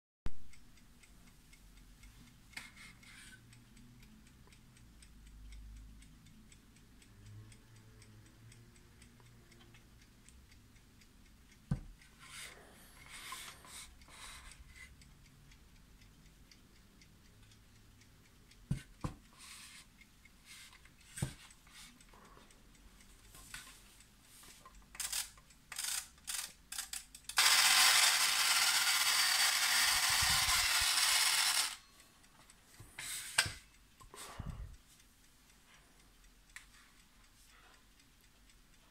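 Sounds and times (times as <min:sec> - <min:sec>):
alarm clock ticking: 0:00.4 - 0:38.9
clock being handled: 0:25.0 - 0:31.8
alarm clock ringing buzz: 0:25.0 - 0:32.0.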